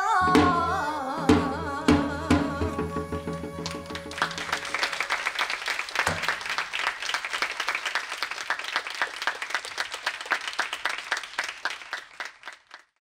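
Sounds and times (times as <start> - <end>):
audience applauding: 3.1 - 13.0.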